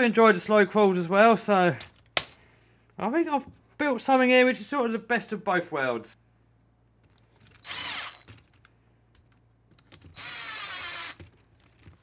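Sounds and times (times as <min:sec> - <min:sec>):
cordless drill motor whine: 0:07.6 - 0:08.3, 0:10.1 - 0:11.3.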